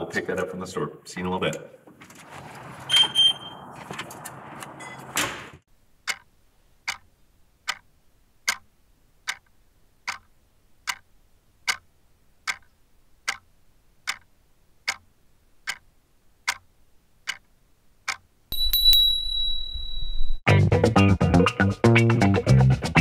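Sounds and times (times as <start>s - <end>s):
clock ticking: 6.0s - 18.3s
brief high ring: 18.5s - 20.4s.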